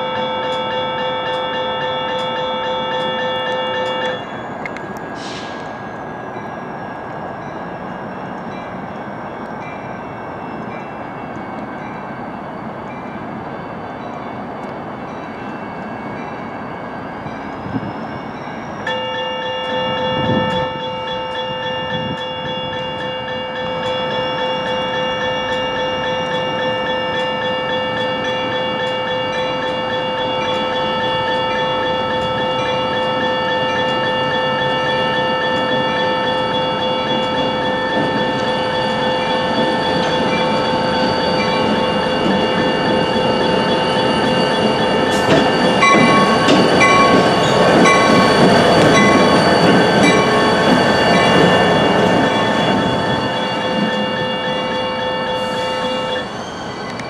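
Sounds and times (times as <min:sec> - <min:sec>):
electronic crossing bell ringing: 0:00.0 - 0:05.0, 0:17.2 - 0:56.3
diesel locomotive rumble: 0:03.0 - 0:18.8, 0:36.6 - 0:57.0.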